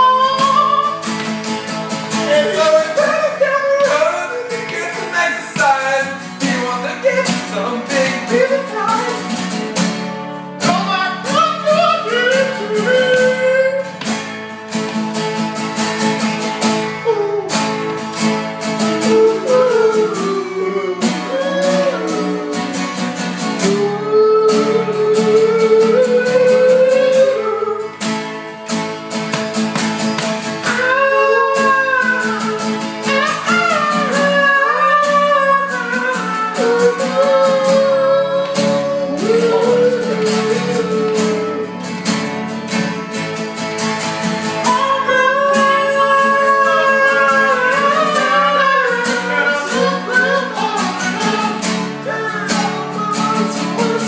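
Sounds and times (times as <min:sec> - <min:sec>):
acoustic guitars strummed: 0:00.0 - 0:54.0
men singing together: 0:02.2 - 0:08.7, 0:30.6 - 0:41.8, 0:44.6 - 0:54.0.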